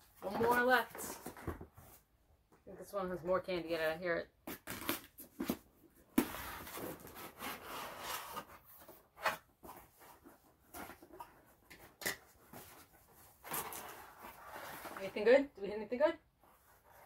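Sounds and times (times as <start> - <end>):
scraping and rubbing on cardboard: 6.2 - 11.7, 12.4 - 15.4.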